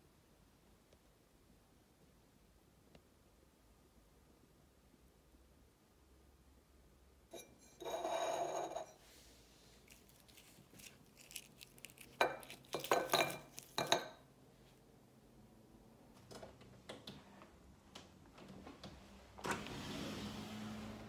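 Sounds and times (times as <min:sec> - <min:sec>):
foil chocolates clinking on a dish: 0:09.9 - 0:14.2.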